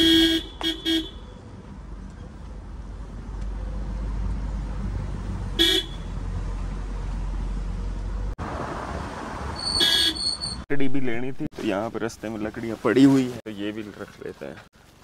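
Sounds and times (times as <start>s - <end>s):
car horn toot: 0.0s - 1.3s, 5.6s - 6.1s, 9.6s - 10.6s
car engine and road rumble: 0.0s - 15.0s.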